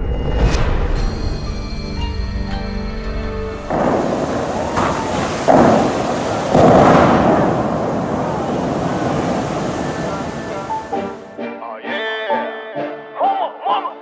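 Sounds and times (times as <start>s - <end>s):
fountain water jets rushing: 3.7s - 11.2s.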